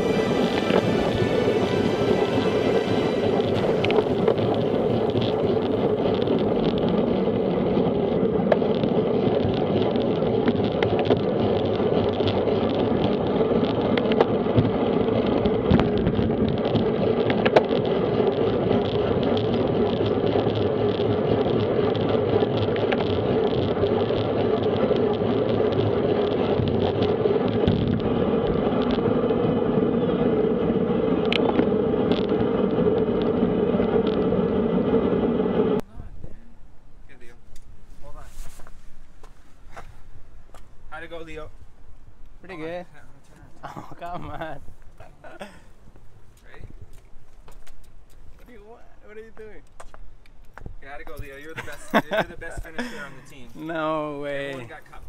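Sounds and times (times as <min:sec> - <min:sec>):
tyre and road noise: 0:00.0 - 0:36.1
wind rushing over microphone: 0:00.0 - 0:36.4.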